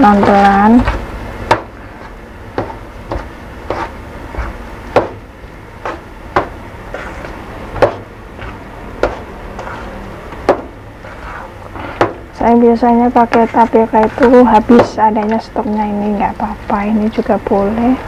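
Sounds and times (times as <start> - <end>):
hands kneading dough in metal bowl: 0.0 - 1.0
low steady hum: 0.0 - 18.0.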